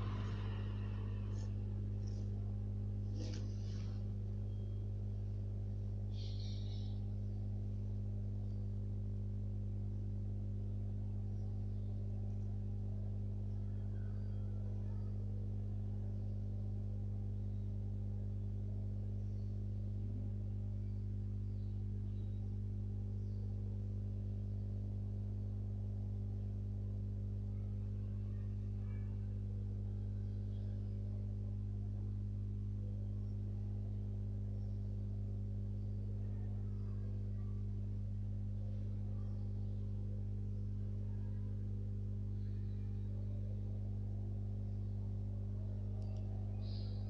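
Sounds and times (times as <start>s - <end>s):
faint higher overtone: 0.0s - 7.0s
steady low hum: 0.0s - 47.0s.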